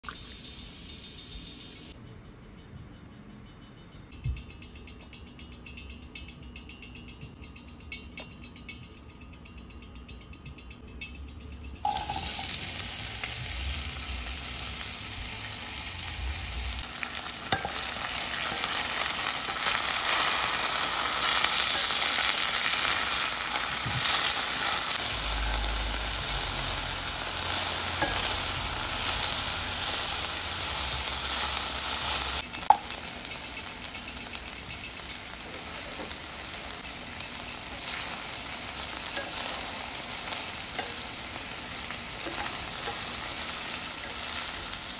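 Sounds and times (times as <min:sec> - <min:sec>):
onions sizzling in oil: 0:00.1 - 0:01.9, 0:11.8 - 0:44.9.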